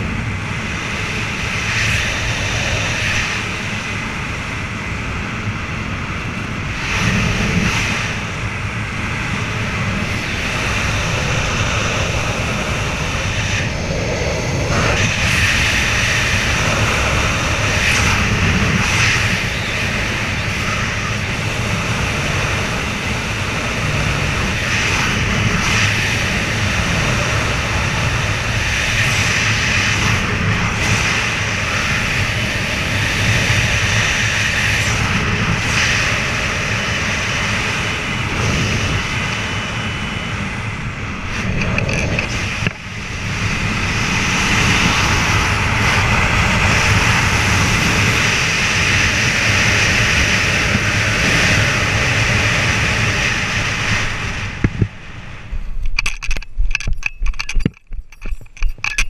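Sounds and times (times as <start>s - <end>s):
wind rushing over microphone: 0.0s - 59.0s.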